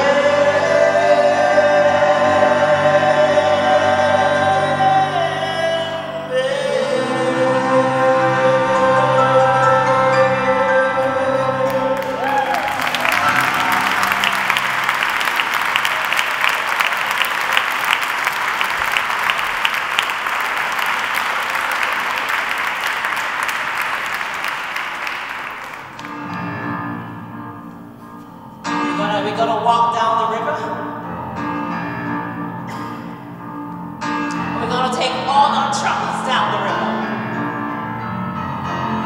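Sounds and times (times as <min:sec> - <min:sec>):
person singing: 0:00.0 - 0:14.7
keyboard playing: 0:00.0 - 0:39.0
audience applauding: 0:11.7 - 0:26.4.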